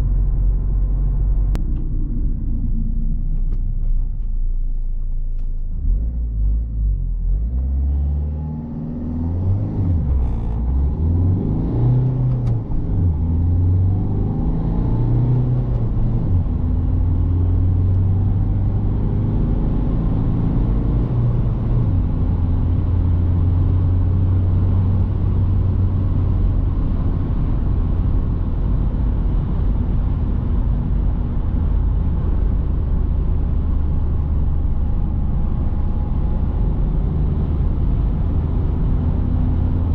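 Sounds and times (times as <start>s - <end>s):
car engine accelerating: 0.0s - 39.9s.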